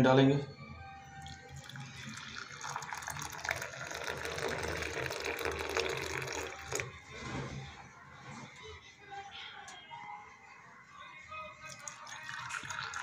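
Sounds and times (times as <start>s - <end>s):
tea pouring into a teacup: 1.2s - 7.1s, 11.6s - 13.0s.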